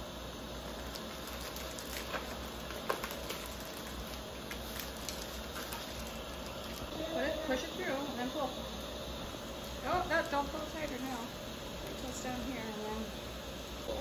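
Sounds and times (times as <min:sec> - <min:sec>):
steady low hum: 0:00.0 - 0:14.0
plastic bag crinkling: 0:00.6 - 0:07.0
sharp plastic crackles: 0:00.6 - 0:07.0.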